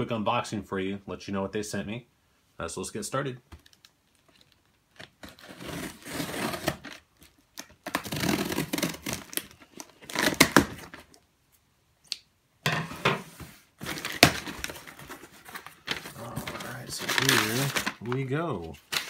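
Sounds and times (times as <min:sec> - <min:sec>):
packing tape ripping: 0:04.3 - 0:11.2, 0:13.8 - 0:18.1.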